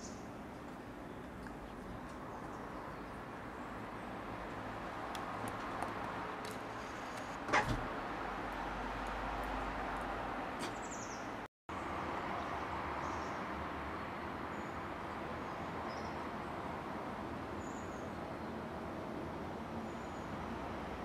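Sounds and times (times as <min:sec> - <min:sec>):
distant traffic noise: 0:00.0 - 0:21.0.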